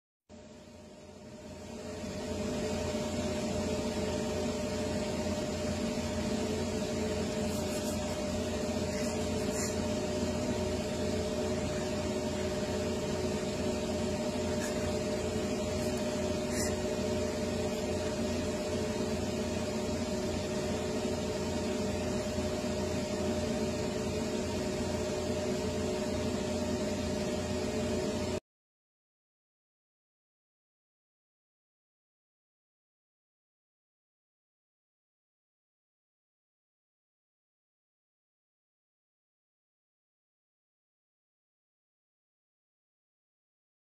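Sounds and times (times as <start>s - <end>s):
machine hum and hiss: 0.4s - 28.4s.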